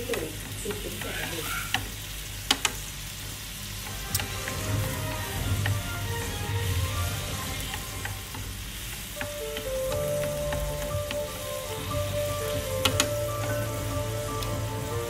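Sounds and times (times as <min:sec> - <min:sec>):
sauce simmering and sizzling in pan: 0:00.0 - 0:15.0
chopsticks stirring: 0:03.6 - 0:15.0.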